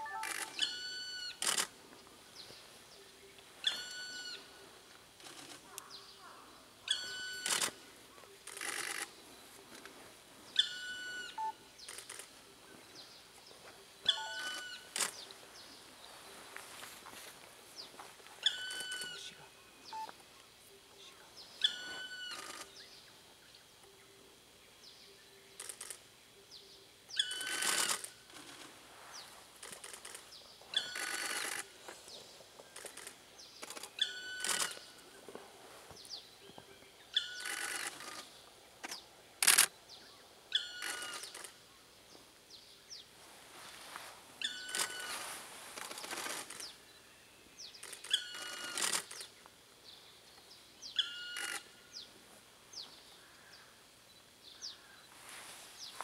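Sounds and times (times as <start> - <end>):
woodpecker plaintive call: 0.0 - 1.6, 3.6 - 4.5, 6.3 - 7.8, 10.6 - 11.5, 14.0 - 15.1, 18.4 - 20.1, 21.6 - 22.7, 27.1 - 28.0, 30.7 - 31.6, 34.0 - 34.9, 37.1 - 38.3, 40.5 - 41.5, 44.4 - 45.3, 48.0 - 49.0, 50.9 - 51.8.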